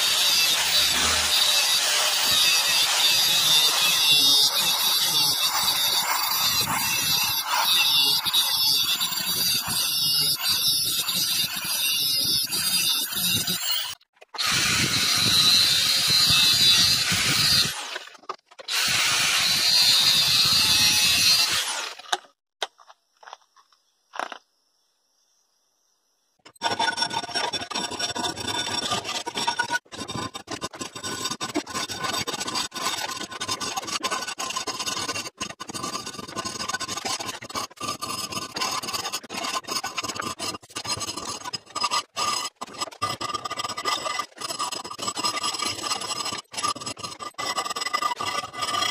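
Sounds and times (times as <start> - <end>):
hand file rasping on steel: 0.0 - 18.0, 26.6 - 48.9
angle grinder cutting steel: 0.0 - 22.2.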